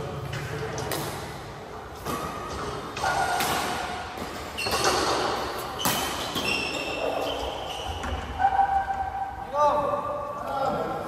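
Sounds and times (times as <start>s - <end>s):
racquets hitting shuttlecock: 0.3s - 7.2s
sports shoes squeaking on floor: 4.2s - 9.1s.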